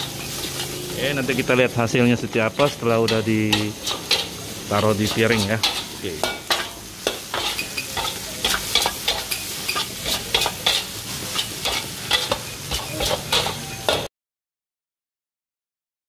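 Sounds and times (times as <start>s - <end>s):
food sizzling: 0.0s - 14.1s
metal spatula scraping wok: 0.0s - 14.1s.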